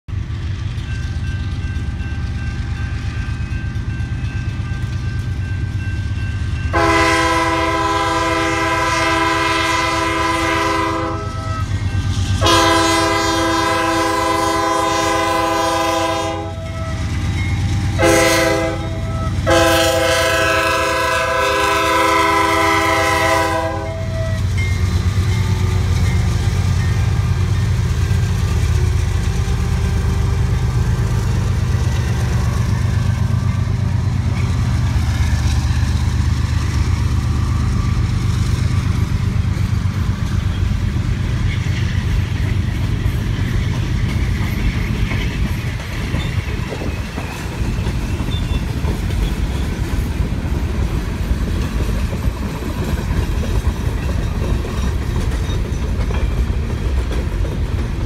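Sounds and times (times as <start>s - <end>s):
locomotive air horn blasts: 6.7s - 17.1s, 17.7s - 24.5s.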